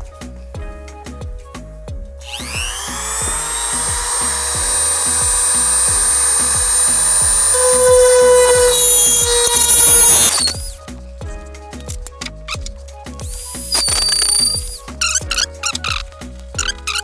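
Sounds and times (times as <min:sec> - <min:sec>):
background music with beat: 0:00.0 - 0:17.0
rotary tool high whine: 0:02.3 - 0:10.7, 0:13.6 - 0:14.6.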